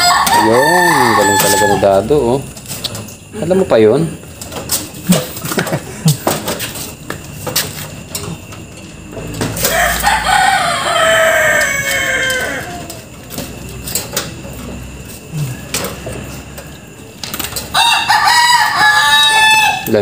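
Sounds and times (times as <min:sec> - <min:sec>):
rooster crowing: 0:00.0 - 0:02.2, 0:09.4 - 0:13.3, 0:17.6 - 0:20.0.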